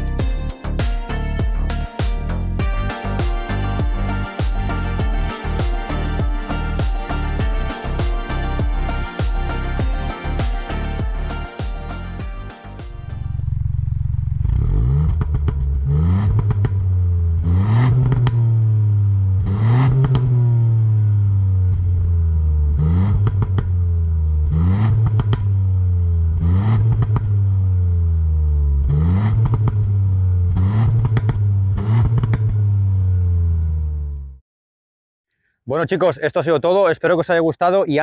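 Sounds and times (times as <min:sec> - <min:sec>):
car engine revving: 0:00.0 - 0:34.2
exhaust crackle: 0:13.0 - 0:33.7.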